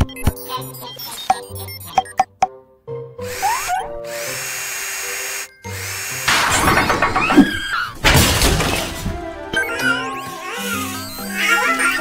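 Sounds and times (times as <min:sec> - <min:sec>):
bouncy background music: 0:00.0 - 0:04.4, 0:05.4 - 0:12.0
cordless power drill whirring: 0:03.3 - 0:06.3.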